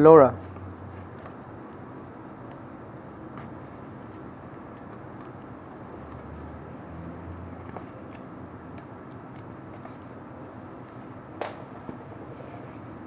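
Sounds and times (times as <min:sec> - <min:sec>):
steady low hum: 0:00.0 - 0:13.0
tape ticks and crinkles: 0:03.3 - 0:06.6, 0:07.5 - 0:12.0.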